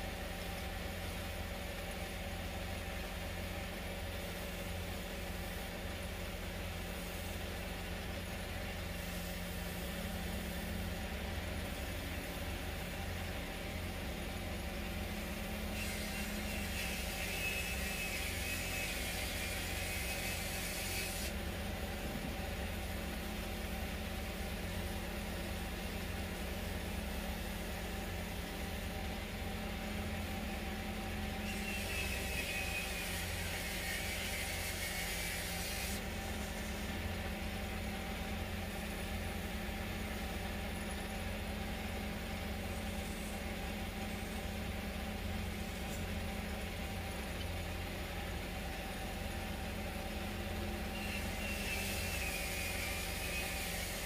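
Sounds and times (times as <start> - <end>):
tool scraping spinning wood: 15.2 - 21.4, 31.0 - 37.6, 51.0 - 54.0.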